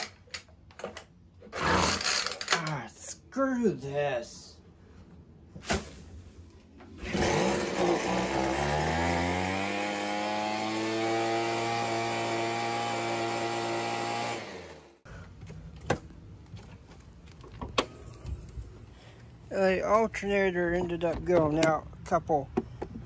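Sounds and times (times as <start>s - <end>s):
leaf blower engine revving: 1.5s - 2.3s, 7.0s - 15.0s.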